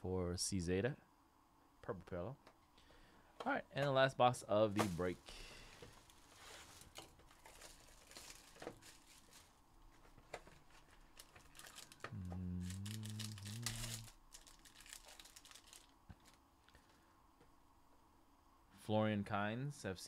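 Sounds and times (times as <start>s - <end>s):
wrapper rustling: 5.9s - 16.8s
plastic wrap crinkling and tearing: 6.0s - 9.6s, 10.4s - 16.4s
man humming: 12.0s - 14.2s.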